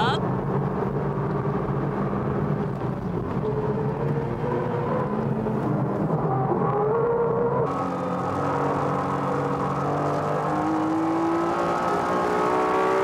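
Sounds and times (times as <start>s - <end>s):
car engine at speed: 0.0s - 13.0s
road and wind noise: 0.0s - 13.0s.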